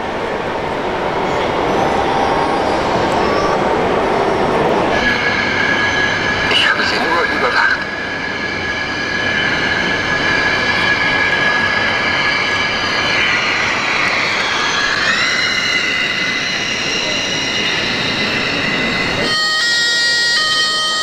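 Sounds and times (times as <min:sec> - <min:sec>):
hall noise: 0:00.0 - 0:21.0
rc car motor whine: 0:01.3 - 0:06.4, 0:13.0 - 0:21.0.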